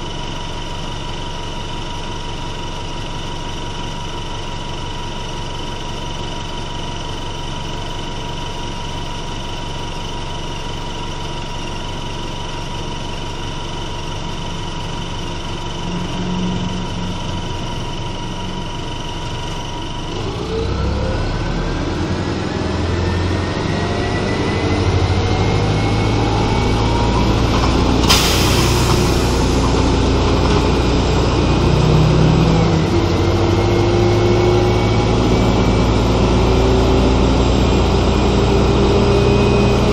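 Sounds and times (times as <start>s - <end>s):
bus engine whining: 10.6s - 39.9s
hissing burst: 28.0s - 30.0s.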